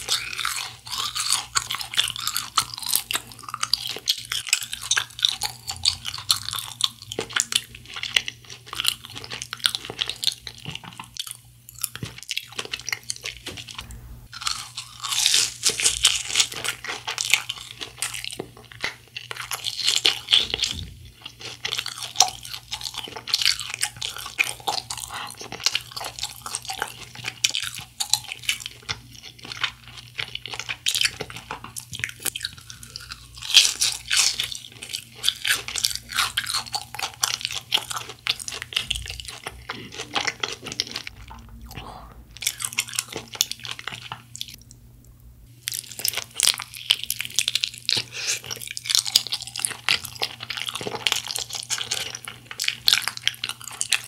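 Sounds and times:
crunching and chewing: 0.0s - 44.8s, 45.5s - 54.0s.

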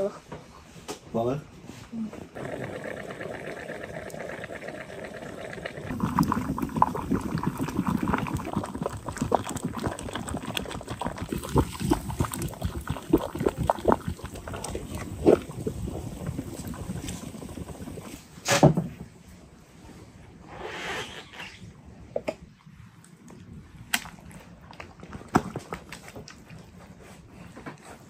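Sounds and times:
water boiling and bubbling: 2.3s - 18.4s, 22.6s - 27.3s.

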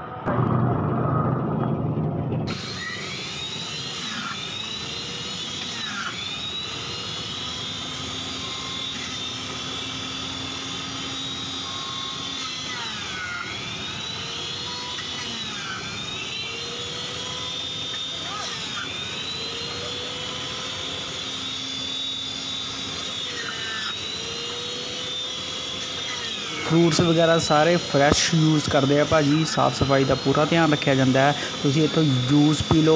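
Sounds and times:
loud low rumble: 0.2s - 2.5s
juice extractor whining: 2.5s - 32.9s.

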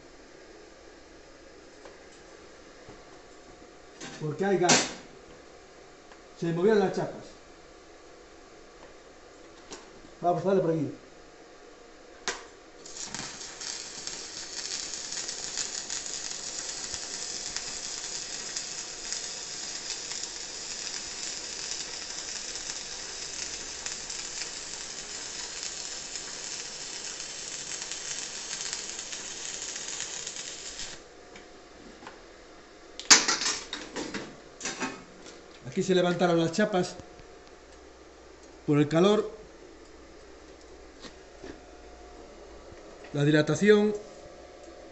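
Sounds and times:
welding arc crackling sizzle: 12.8s - 31.1s.

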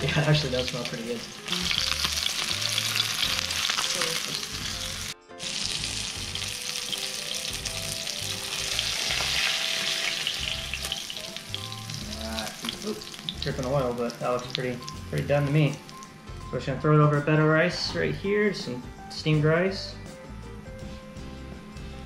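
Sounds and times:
fish frying in hot oil: 0.0s - 16.1s.

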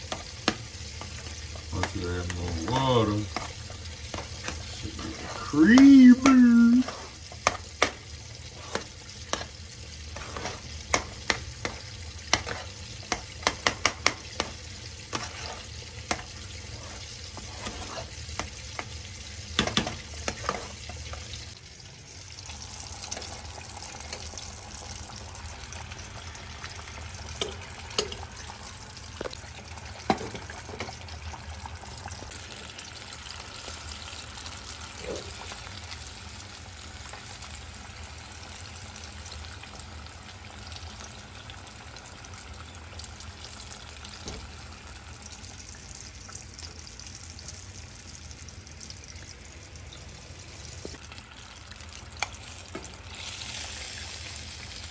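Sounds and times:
metal spoon stirring in saucepan: 0.0s - 19.0s, 19.6s - 21.3s
chicken frying in hot oil: 0.0s - 54.9s.

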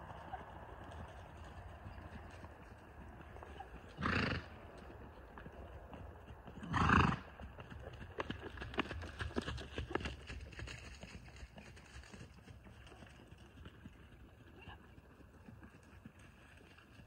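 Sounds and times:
hoofbeats on soft dirt: 0.0s - 17.0s
horse vocal sounds: 3.4s - 4.8s, 6.5s - 7.4s.

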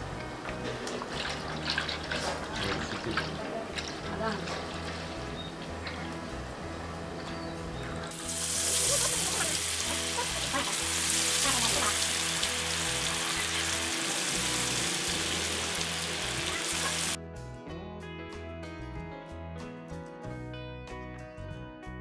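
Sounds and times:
background music: 0.0s - 22.0s
hot oil sizzling loudly: 8.0s - 17.2s.

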